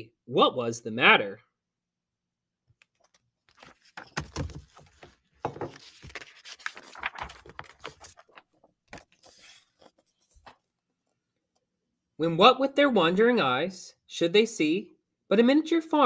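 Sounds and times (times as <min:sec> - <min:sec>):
book pages rustling: 0:02.8 - 0:11.2.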